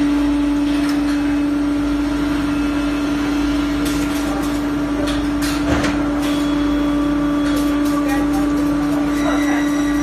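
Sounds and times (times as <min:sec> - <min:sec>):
machinery humming: 0:00.0 - 0:10.0
machine knocks and clanks: 0:03.9 - 0:06.4.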